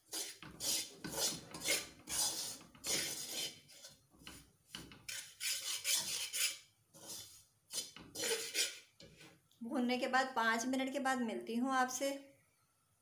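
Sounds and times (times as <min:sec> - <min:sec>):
metal spatula scraping a pan: 0:00.0 - 0:09.4.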